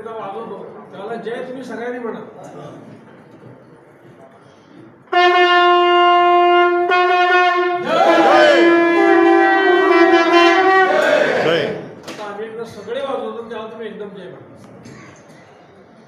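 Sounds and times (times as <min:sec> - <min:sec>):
conch shells blown: 0:05.1 - 0:11.8.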